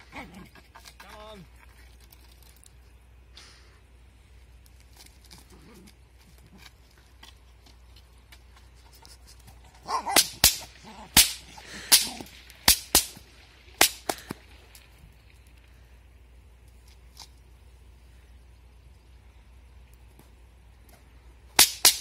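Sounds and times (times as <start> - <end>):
bullwhip cracking: 10.0 - 14.5, 21.6 - 22.0.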